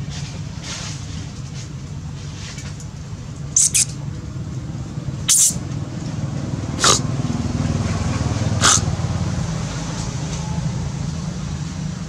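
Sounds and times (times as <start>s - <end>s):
monkey squeaking: 3.6s - 4.0s, 5.3s - 5.6s, 6.8s - 7.0s, 8.6s - 8.9s.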